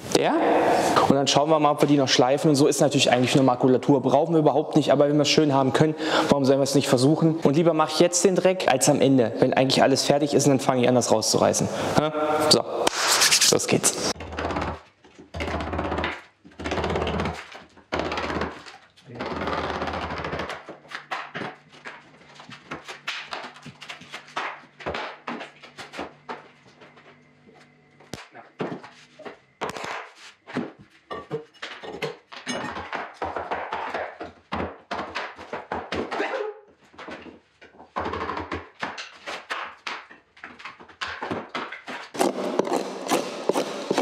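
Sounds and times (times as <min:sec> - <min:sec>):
knocks thuds and cracks: 0:41.0 - 0:44.0.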